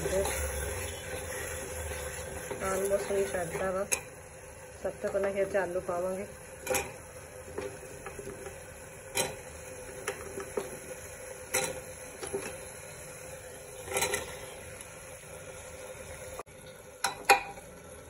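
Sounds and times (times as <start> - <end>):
ladle clinking against pot: 6.6 - 7.0.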